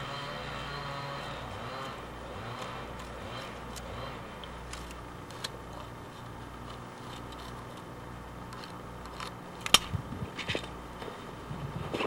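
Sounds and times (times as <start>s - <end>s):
sharp click: 9.2s - 10.7s.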